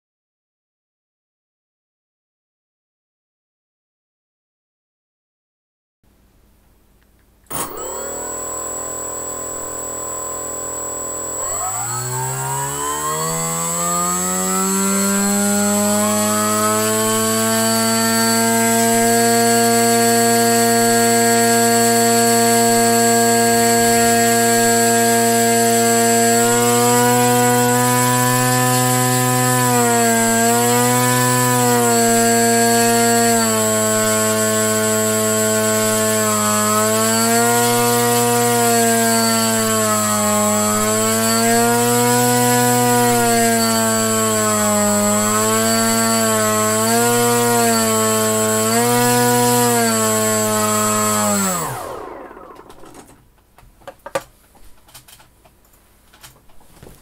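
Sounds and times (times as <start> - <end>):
electric motor and propeller buzzing: 7.5 - 53.1.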